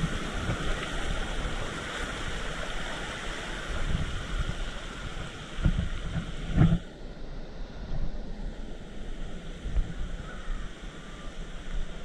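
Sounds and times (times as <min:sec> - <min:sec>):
waterfall rushing: 0:00.0 - 0:06.5
wind buffeting microphone: 0:00.0 - 0:12.0.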